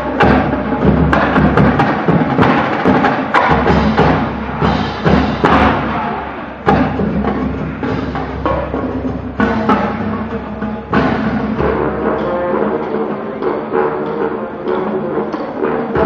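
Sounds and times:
marching band playing: 0.0 - 16.0
sharp drum hits: 0.2 - 11.8.

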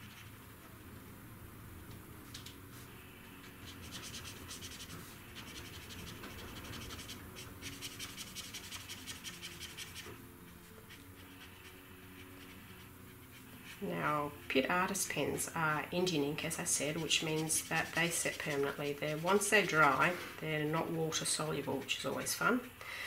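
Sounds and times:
brush pen scratching on paper: 2.8 - 14.2, 16.6 - 22.8.

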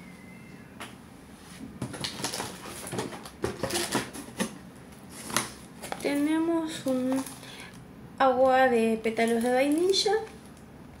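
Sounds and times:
packaging rustling and crinkling: 1.8 - 7.8, 9.2 - 10.6.

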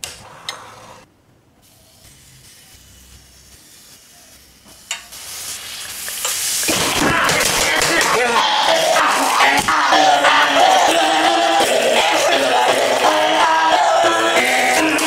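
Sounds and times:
batter sizzling on a griddle: 1.7 - 6.8.

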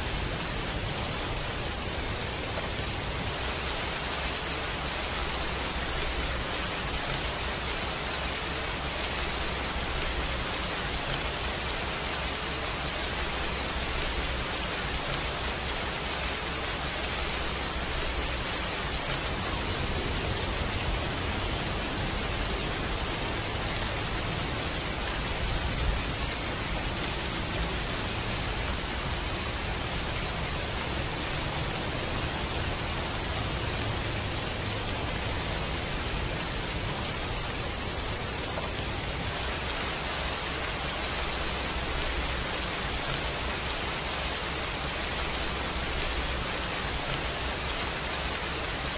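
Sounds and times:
steady rain hiss: 0.0 - 48.9.

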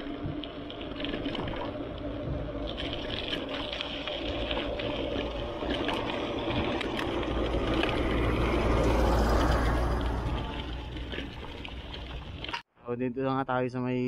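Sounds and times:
bike tyres on dirt road: 0.0 - 12.6
dump truck passing: 1.6 - 12.5.

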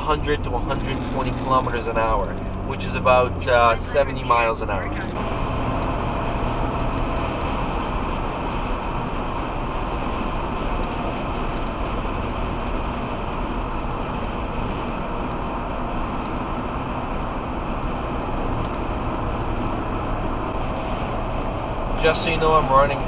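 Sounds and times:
wind noise inside car cabin: 0.0 - 23.0.

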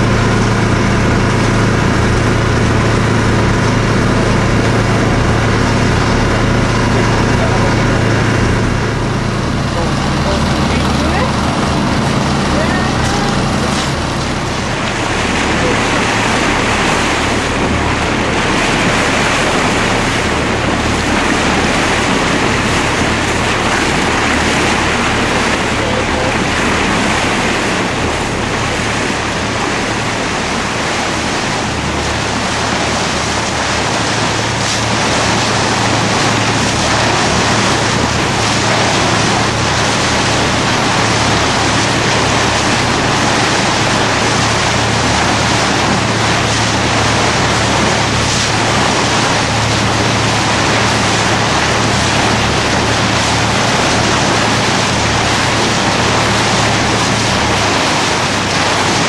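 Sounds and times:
boat engine humming: 0.0 - 59.0
water rushing: 0.0 - 59.0.

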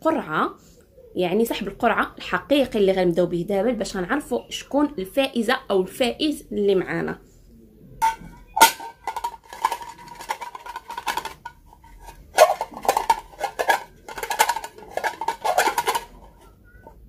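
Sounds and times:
glass and metal clinking and rattling: 8.0 - 16.6.

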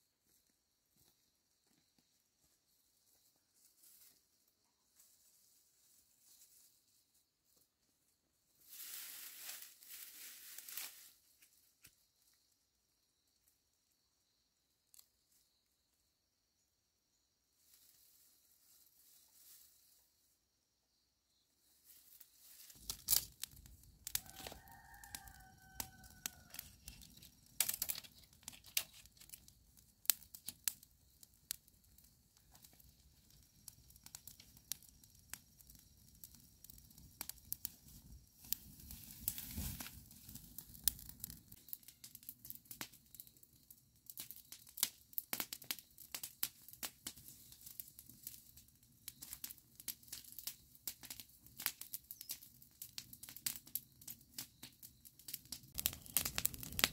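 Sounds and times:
rustling and crackling: 8.6 - 12.0, 21.8 - 34.7, 37.2 - 41.6, 55.3 - 56.9.

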